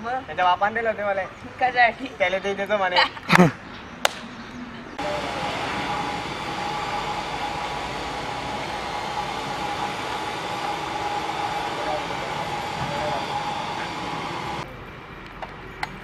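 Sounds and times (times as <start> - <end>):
steady rushing noise with thin tone: 5.0 - 14.7.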